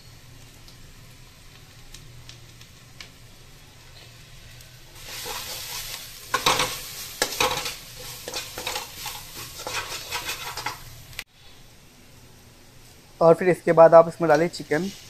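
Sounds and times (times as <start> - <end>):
onions sizzling in oil: 0.0 - 15.0
spatula scraping pan: 4.9 - 11.0.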